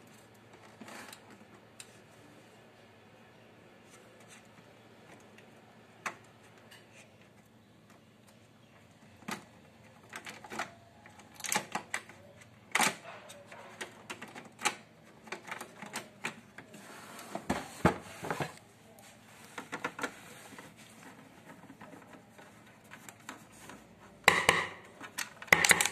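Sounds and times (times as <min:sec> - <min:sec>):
plastic clicks snaps and knocks: 0:24.2 - 0:25.9
loud plastic snap: 0:24.3 - 0:25.9.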